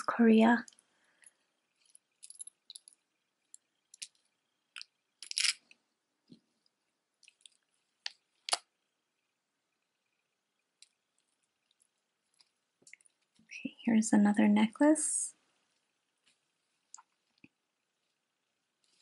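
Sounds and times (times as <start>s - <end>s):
jewelry clicking and clinking: 0.6s - 5.8s.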